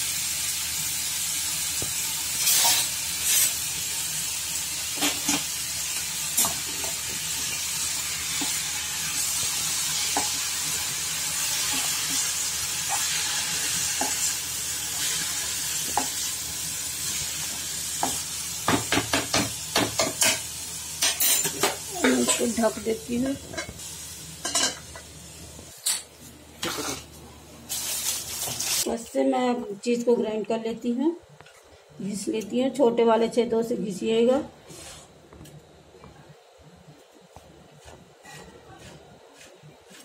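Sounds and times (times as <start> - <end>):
vegetables sizzling in oil: 0.0 - 30.2.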